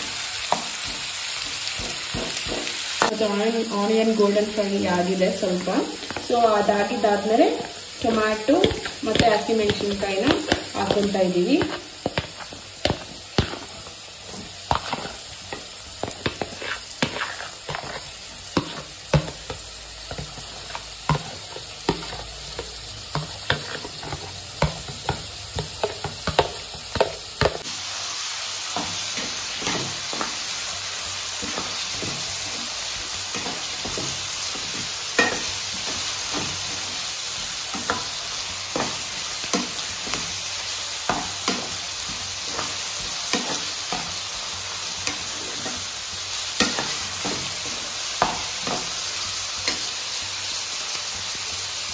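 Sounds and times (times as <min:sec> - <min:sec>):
vegetables sizzling in oil: 0:00.0 - 0:51.9
metal spatula scraping pan: 0:13.4 - 0:19.3.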